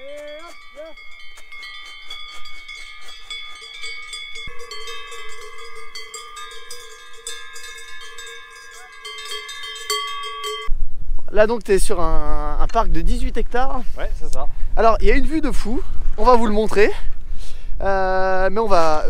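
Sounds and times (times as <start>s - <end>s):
cowbells clanking: 0.0s - 10.7s.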